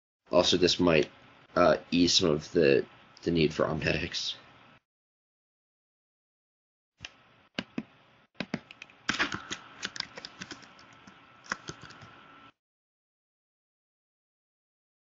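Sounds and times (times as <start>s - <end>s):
typing on computer keyboard: 8.4s - 12.1s.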